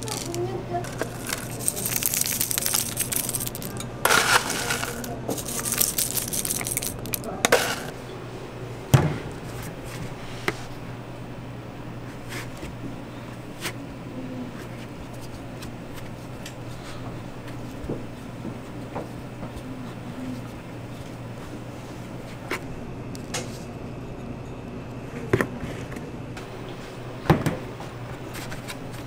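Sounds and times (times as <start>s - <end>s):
dry cereal pattering and crackling: 0.0s - 8.0s
metal scoop scraping plastic tub: 0.0s - 8.0s
steady low hum: 0.0s - 29.0s.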